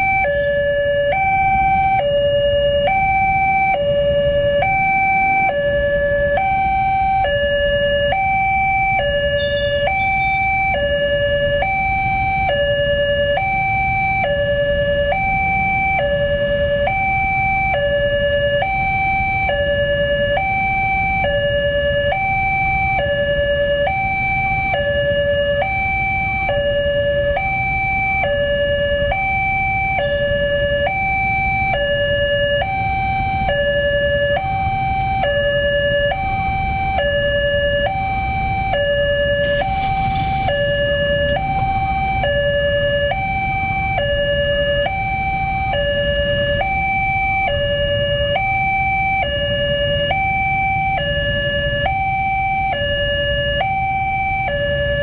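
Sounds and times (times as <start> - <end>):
road traffic rumble: 0.0 - 55.0
two-tone crossing alarm: 0.0 - 55.0.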